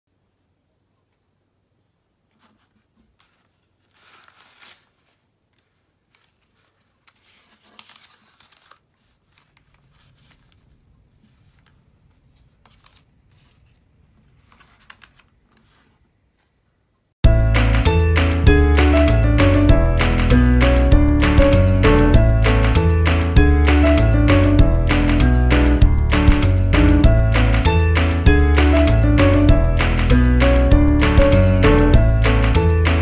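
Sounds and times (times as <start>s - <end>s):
paper rustling: 2.3s - 16.6s.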